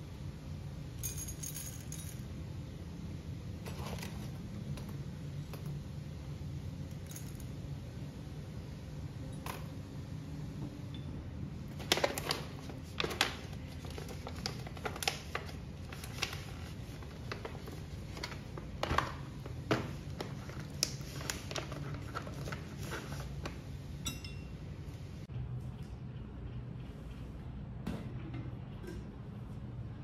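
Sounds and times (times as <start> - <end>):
low steady hum: 0.0 - 30.0
metal coffee tools clinking: 24.0 - 24.6.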